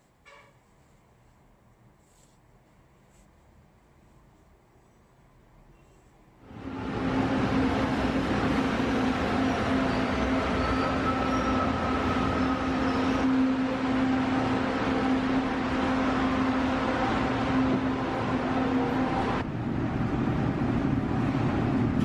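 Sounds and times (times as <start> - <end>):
train hum: 5.4 - 22.0
train cars noise: 6.5 - 22.0.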